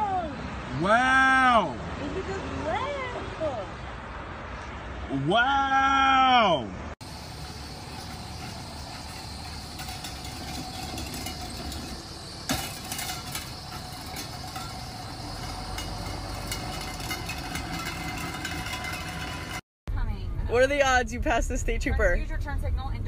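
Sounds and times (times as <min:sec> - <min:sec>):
truck engine droning: 0:07.0 - 0:19.6.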